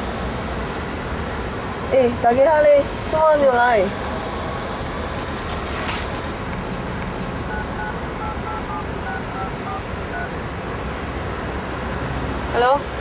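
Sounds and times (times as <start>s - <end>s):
background traffic noise: 0.0s - 13.0s
phone keypad two-tone beeps: 7.5s - 10.3s.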